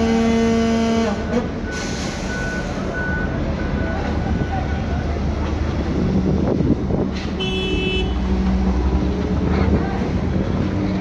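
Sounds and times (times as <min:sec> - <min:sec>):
heavy machinery engines droning: 0:00.0 - 0:11.0.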